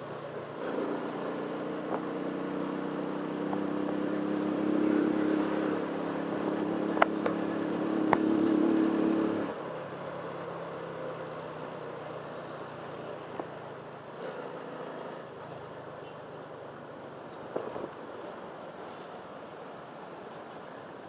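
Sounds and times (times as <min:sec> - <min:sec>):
vehicle engine running: 0:00.0 - 0:16.4.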